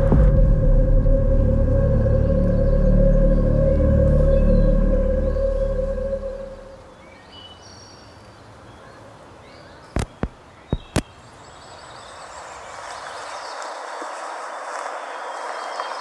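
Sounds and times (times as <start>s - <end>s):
rushing outdoor hiss: 0.0s - 16.0s.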